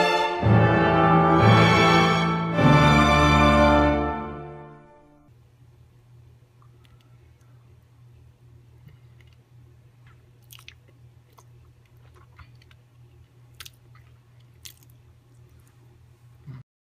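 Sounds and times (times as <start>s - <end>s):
low steady hum: 0.0s - 16.6s
lip smacks: 10.0s - 15.8s
wet chewing: 10.0s - 15.9s.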